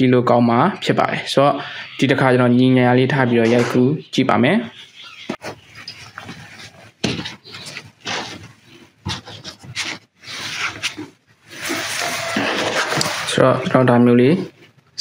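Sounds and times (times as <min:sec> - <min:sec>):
bags rubbing and scraping: 0:05.4 - 0:14.7.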